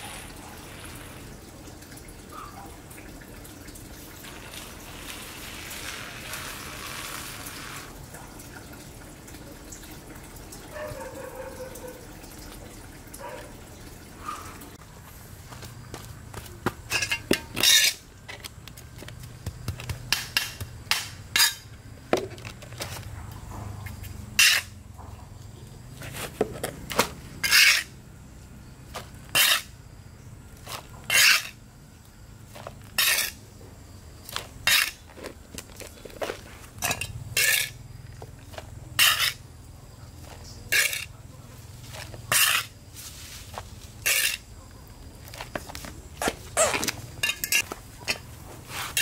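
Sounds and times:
trowel scraping soil on concrete: 0.0s - 1.3s, 4.2s - 8.0s, 15.1s - 23.1s, 23.8s - 24.8s, 25.9s - 28.0s, 28.9s - 29.8s, 30.6s - 31.6s, 32.5s - 49.0s.

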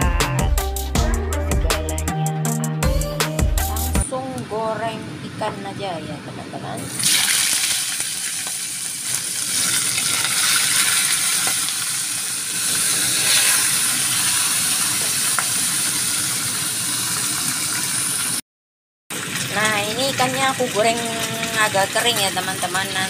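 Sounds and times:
fish sizzling in hot oil: 6.9s - 18.4s, 19.2s - 23.0s.

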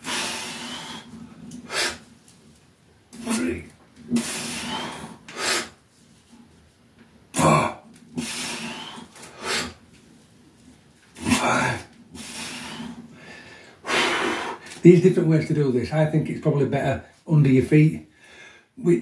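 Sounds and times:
man breathing softly: 12.2s - 14.7s, 18.1s - 18.8s.

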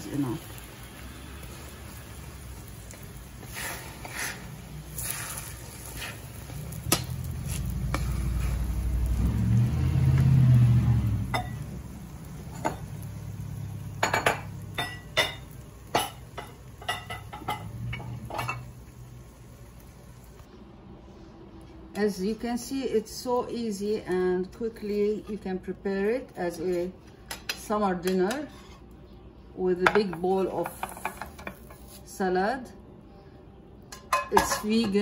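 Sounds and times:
faint sizzle: 0.0s - 26.9s
metal skimmer scraping a frying pan: 3.4s - 8.8s.

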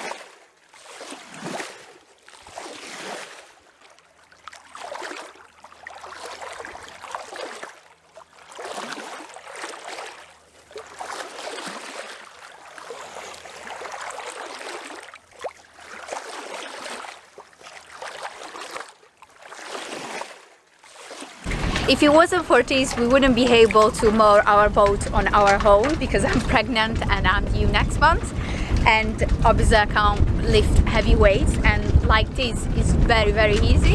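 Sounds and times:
water sloshing and lapping: 0.0s - 33.9s.

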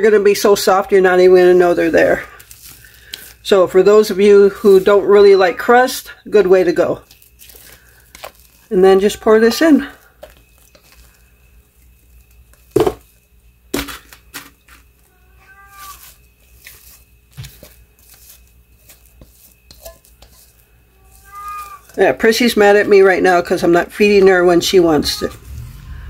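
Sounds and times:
cat meowing: 15.1s - 16.1s, 20.9s - 22.0s, 24.8s - 25.5s.

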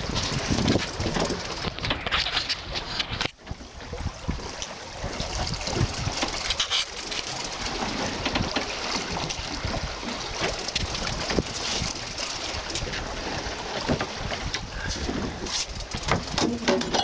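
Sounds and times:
sea washing against boat: 0.0s - 17.0s
wind buffeting microphone: 0.0s - 17.0s.

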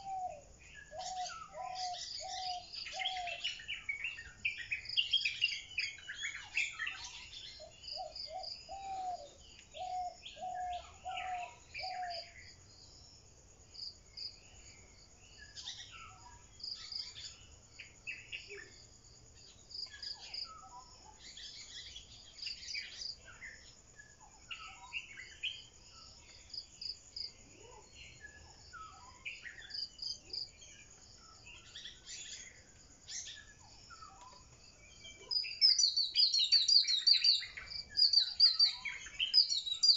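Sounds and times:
birds chirping and calling: 0.0s - 12.4s, 31.2s - 39.9s.

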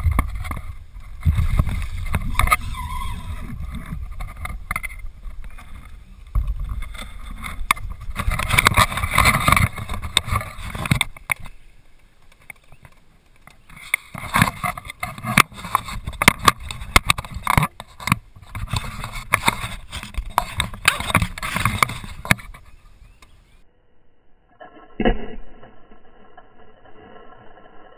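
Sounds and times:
kayak knocks and rustles: 3.4s - 11.5s, 12.2s - 22.8s.

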